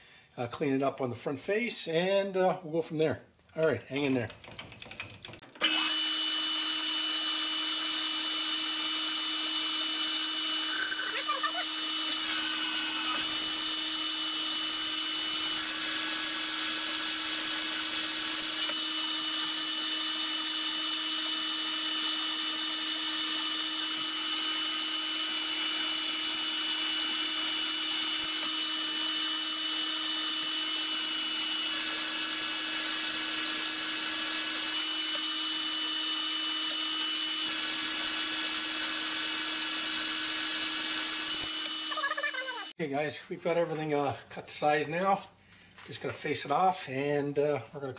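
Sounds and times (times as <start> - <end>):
metal lathe motor whine: 5.6 - 42.7.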